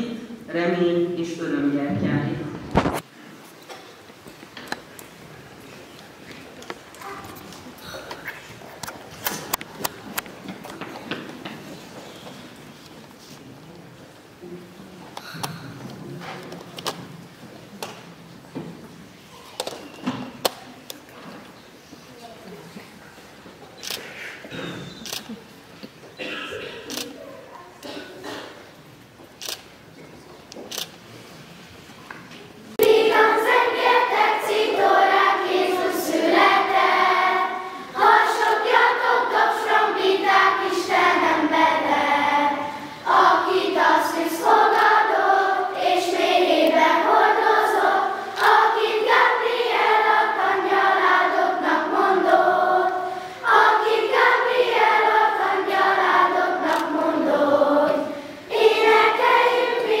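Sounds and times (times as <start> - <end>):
children's choir singing: 32.7 - 60.0.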